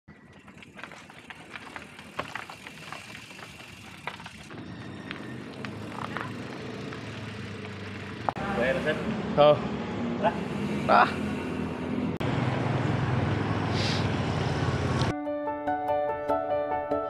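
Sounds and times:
street traffic: 0.1s - 15.1s
small motorcycle engine running: 3.1s - 9.7s.

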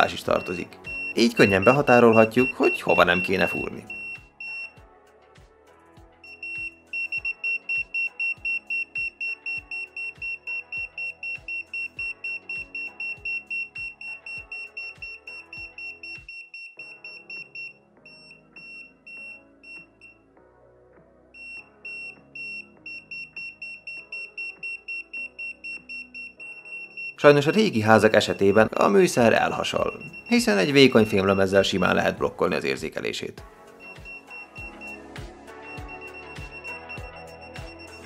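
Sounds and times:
background music with a beat: 0.0s - 20.2s, 21.4s - 32.3s, 33.4s - 38.0s
rapid high-pitched beeps: 0.4s - 4.7s, 6.3s - 20.1s, 29.4s - 31.3s, 33.8s - 38.0s.

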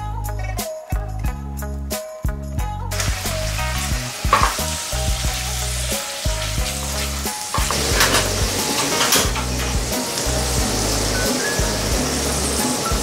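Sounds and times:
background music: 0.0s - 13.0s
meat and onions sizzling in a pan: 2.9s - 13.0s.

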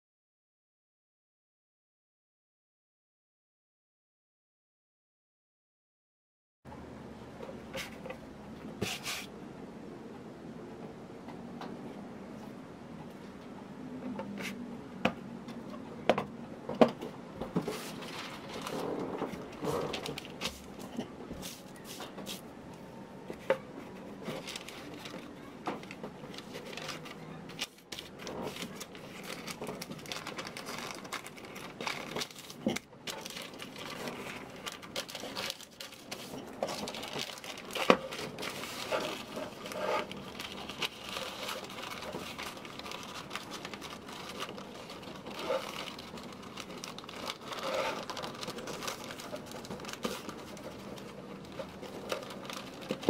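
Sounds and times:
tissue paper rustling and crinkling: 17.6s - 20.8s, 23.8s - 53.0s.

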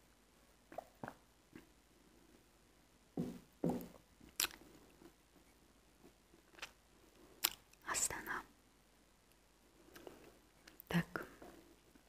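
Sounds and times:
wet mouth smacks: 4.4s - 4.6s, 7.4s - 7.6s.

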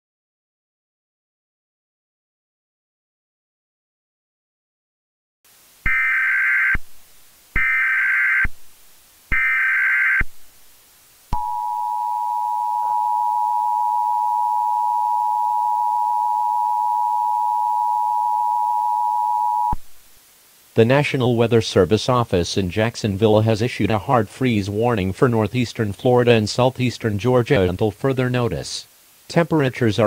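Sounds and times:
digital data tone bursts: 5.9s - 6.8s, 7.6s - 8.5s, 11.4s - 19.8s
two-tone attention signal: 11.4s - 19.8s.

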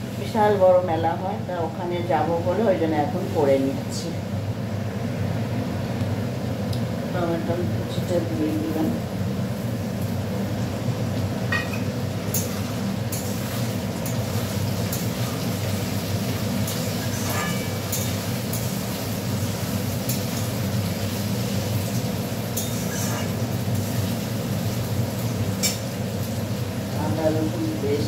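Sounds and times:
spatula scraping metal pan: 17.0s - 18.1s, 22.6s - 23.4s.

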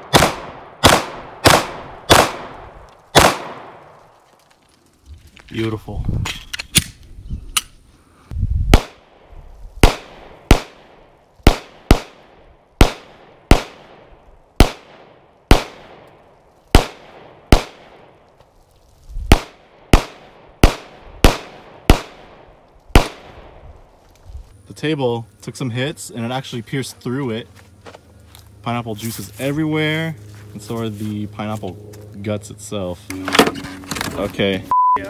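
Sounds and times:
handgun shots with echo: 0.0s - 2.5s, 3.1s - 3.8s.

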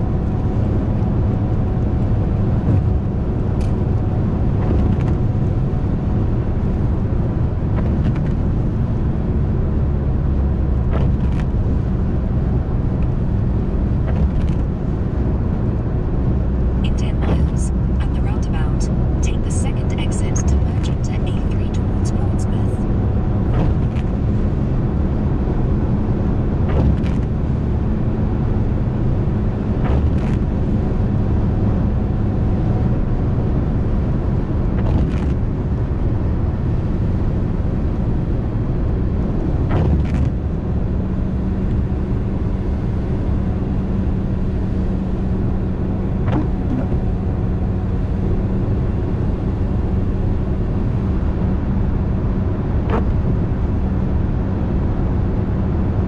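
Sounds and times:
car road noise: 0.0s - 56.0s.

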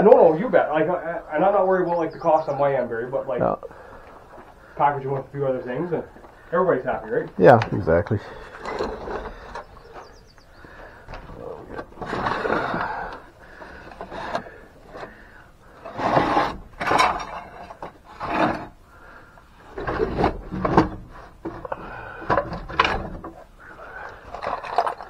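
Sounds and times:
metal box scraping on wooden shelves: 11.4s - 18.8s, 19.6s - 25.0s.

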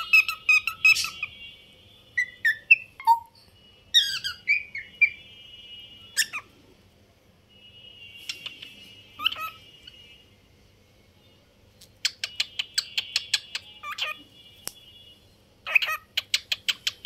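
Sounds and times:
cockatiel chirping: 0.0s - 1.4s, 2.2s - 5.2s, 6.1s - 6.5s, 8.3s - 10.0s, 12.0s - 14.2s, 15.6s - 17.0s.

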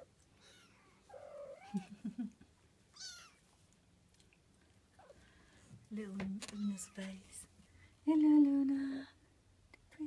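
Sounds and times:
kitten meowing: 2.9s - 3.4s.

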